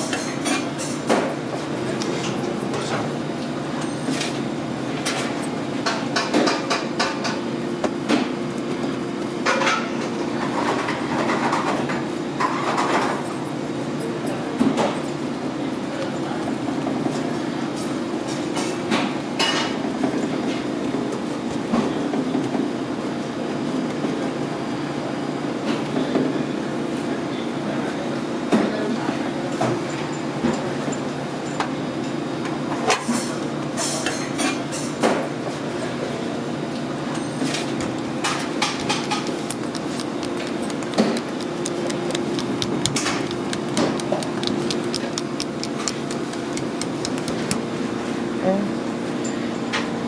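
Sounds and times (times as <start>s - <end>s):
equipment hum: 35.0s - 50.0s.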